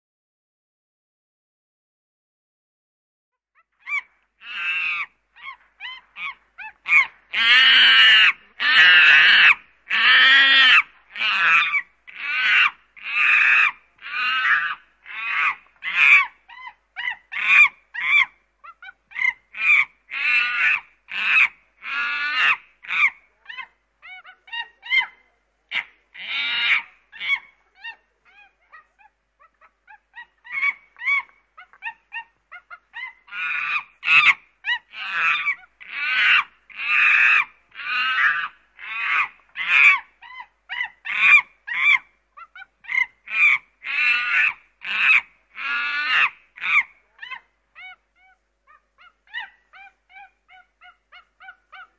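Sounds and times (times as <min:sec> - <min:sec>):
chimpanzee calling: 0:03.6 - 0:51.9.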